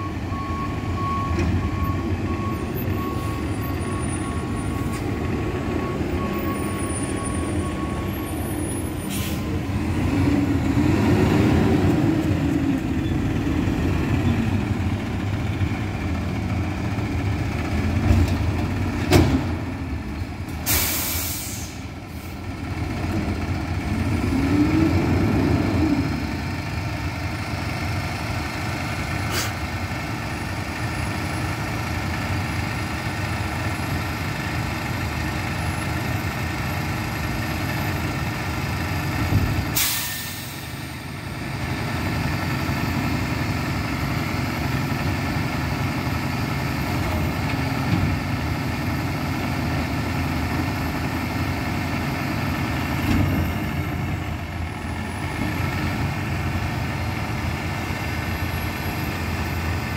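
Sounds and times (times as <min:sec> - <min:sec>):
air-brake hiss: 0:09.1 - 0:09.5, 0:20.6 - 0:22.4, 0:29.3 - 0:29.6, 0:39.8 - 0:40.9.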